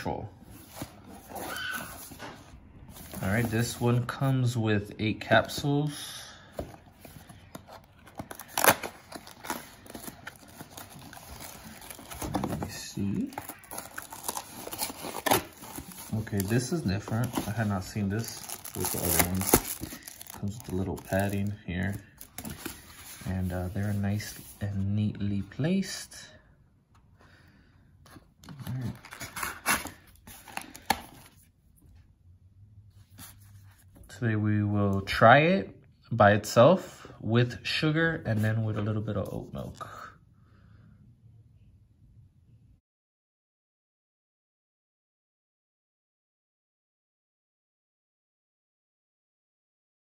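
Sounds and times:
cardboard ripping: 0:08.1 - 0:21.5, 0:28.9 - 0:31.0.

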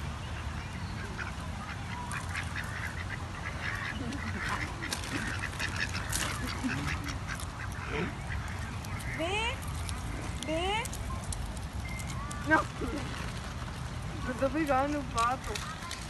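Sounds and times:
ducks quacking: 0:00.4 - 0:10.8.

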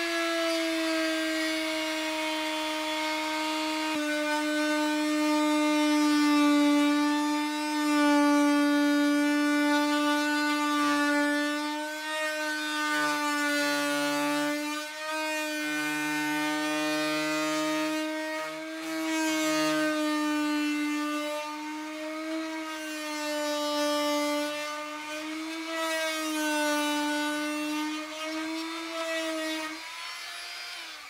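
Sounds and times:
oscillating multi-tool cutting plastic: 0:00.0 - 0:31.0.

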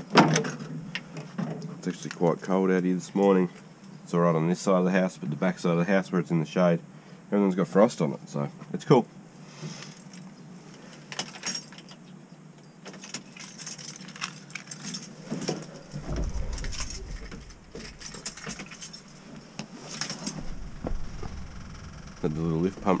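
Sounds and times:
keys jangling: 0:11.1 - 0:12.1, 0:12.9 - 0:20.8
clicks and knocks: 0:15.2 - 0:19.4
low rumble: 0:15.2 - 0:19.4, 0:20.3 - 0:23.0.

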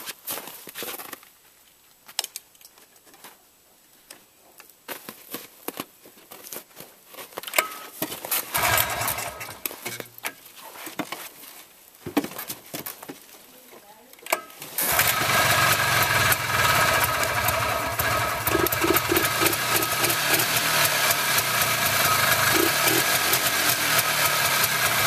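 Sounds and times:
cold engine turning over: 0:08.5 - 0:09.8, 0:14.8 - 0:25.0
recoil starter pull: 0:08.5 - 0:10.0, 0:14.8 - 0:25.0
controls clicking and knocking: 0:18.5 - 0:20.6.

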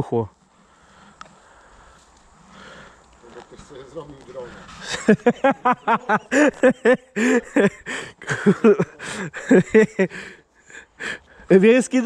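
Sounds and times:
man laughing: 0:04.8 - 0:11.2.

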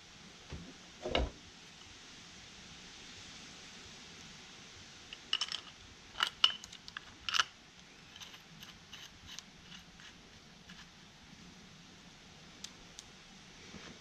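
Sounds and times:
metal clicks and clinks: 0:05.1 - 0:07.5.

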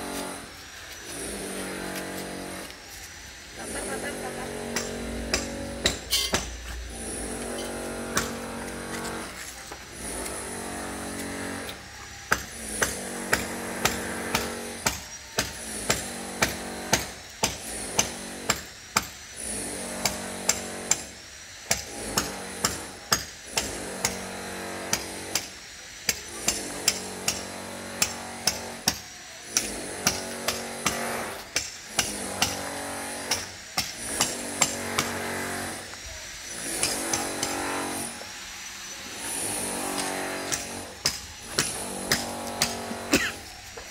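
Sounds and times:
sharp hammering knocks: 0:04.7 - 0:06.6, 0:07.5 - 0:08.7, 0:12.3 - 0:19.2, 0:26.1 - 0:35.3, 0:36.6 - 0:37.8, 0:39.9 - 0:43.4.

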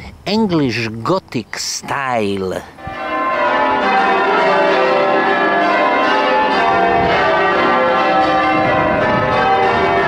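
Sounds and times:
church bells ringing: 0:02.8 - 0:10.0.

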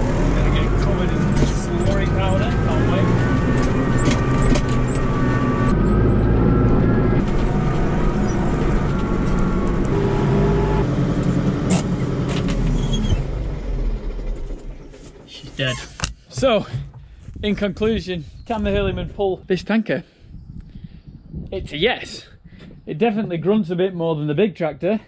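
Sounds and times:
tractor diesel engine running: 0:00.0 - 0:18.9.

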